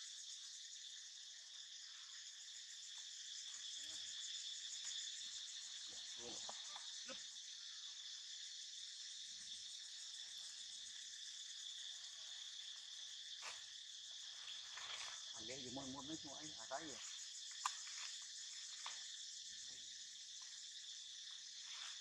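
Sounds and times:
high-pitched insect chorus: 0.0 - 22.0.

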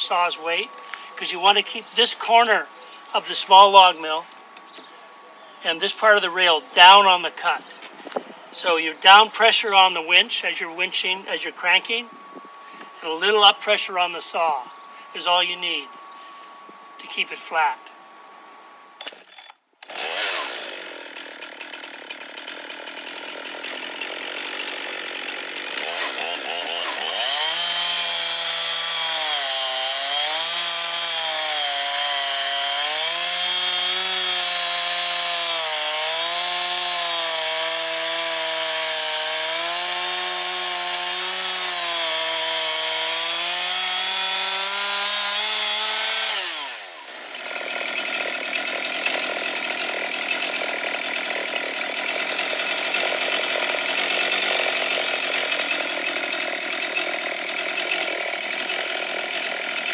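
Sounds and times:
chainsaw ripping a log: 19.0 - 59.9.

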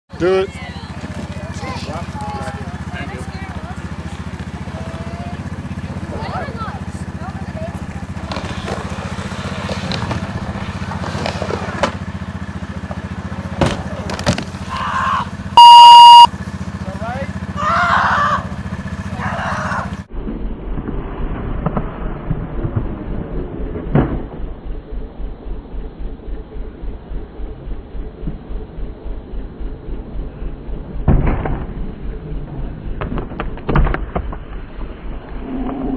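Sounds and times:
engine idling with low putter: 0.2 - 15.6, 16.3 - 20.1.

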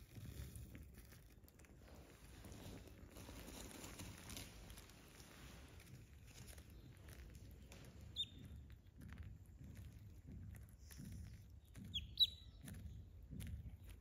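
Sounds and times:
duckling peeping: 8.1 - 8.5, 11.8 - 12.6.

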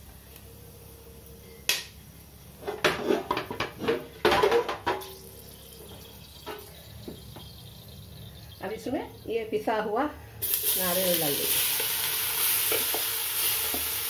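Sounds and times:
metal pot clattering and scraping: 2.6 - 8.6.

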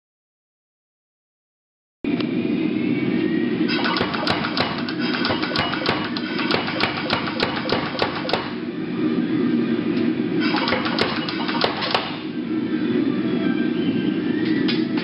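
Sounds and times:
power hammer striking steel: 3.7 - 8.6, 10.4 - 12.2.

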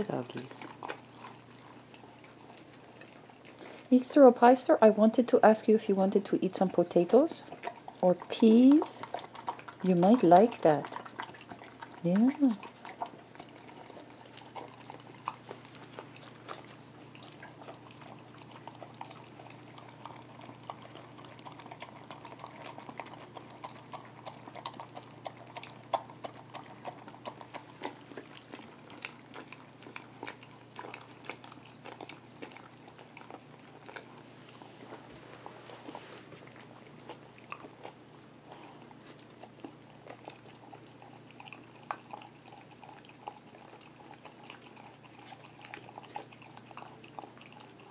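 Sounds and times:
dogs licking and chewing: 0.0 - 47.9
low steady hum: 0.0 - 47.9.

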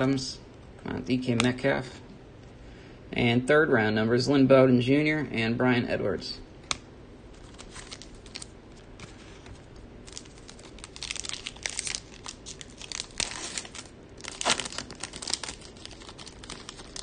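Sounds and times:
foil wrapper tearing and crinkling: 7.4 - 9.2, 10.0 - 17.0.

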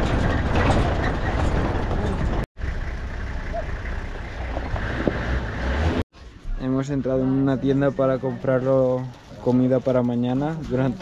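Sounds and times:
vehicle driving on dirt track: 0.0 - 6.6.

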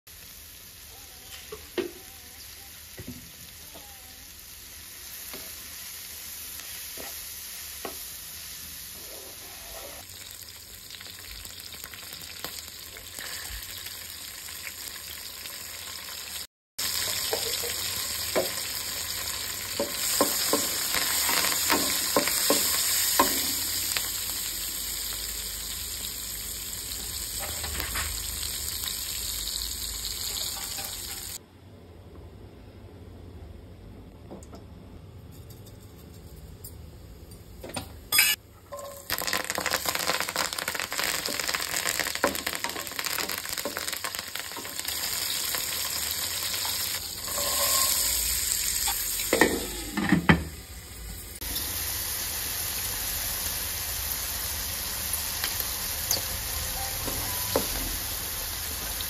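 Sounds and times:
vegetables sizzling in oil: 0.1 - 31.4, 38.2 - 59.0
spatula scraping pan: 9.0 - 10.1, 47.2 - 48.3.

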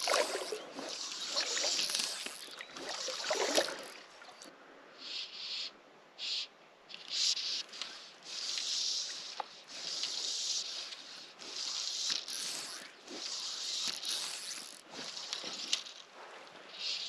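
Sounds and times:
fly line stripped through guides: 0.0 - 4.0, 6.9 - 16.1.

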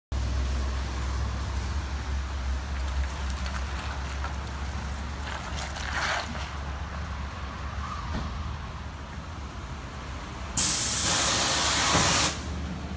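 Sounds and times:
truck engine rumble: 0.1 - 12.9
tyre hiss on wet pavement: 9.0 - 12.8.

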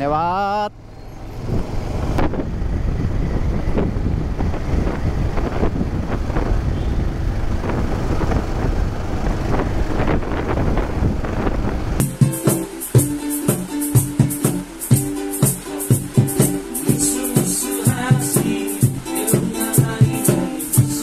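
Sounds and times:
motorcycle engine: 0.0 - 13.1
wind buffeting microphone: 0.8 - 12.4
ukulele strumming: 12.0 - 21.0.

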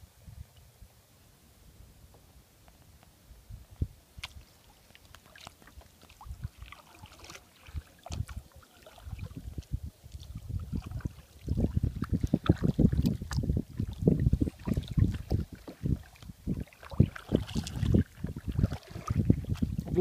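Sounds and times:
wind rumble on microphone: 0.0 - 1.0, 1.7 - 4.6, 5.8 - 6.8, 7.7 - 20.0
water dripping off paddle: 4.2 - 19.9
paddle splashing in water: 4.2 - 20.0.

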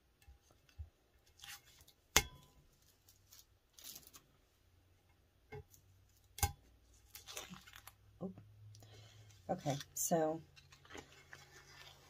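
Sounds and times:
paper and tape peeling and crinkling: 2.7 - 4.4, 6.9 - 8.0, 9.5 - 12.0.

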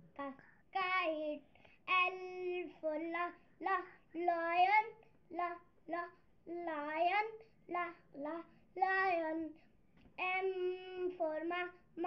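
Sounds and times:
boy singing: 0.0 - 9.6, 10.2 - 12.0.

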